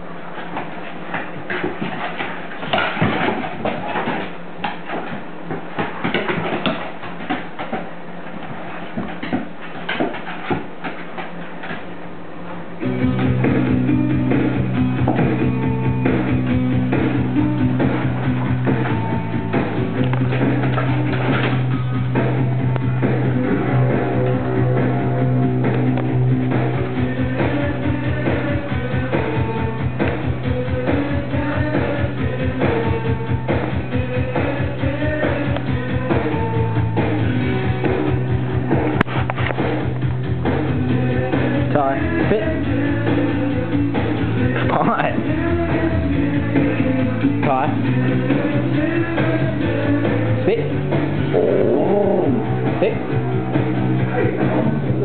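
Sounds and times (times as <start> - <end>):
rock music with guitar: 12.8 - 55.0.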